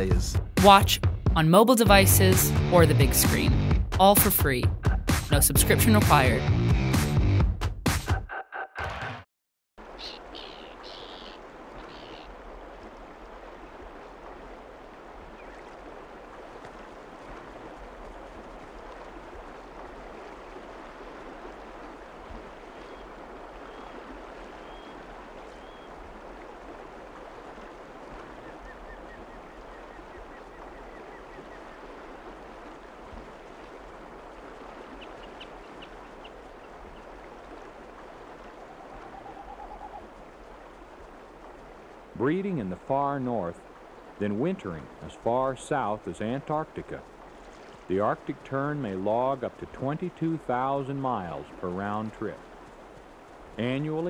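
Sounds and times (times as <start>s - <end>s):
faint bird calls: 10.0s - 12.4s, 22.6s - 26.0s, 34.9s - 37.1s, 38.5s - 40.1s.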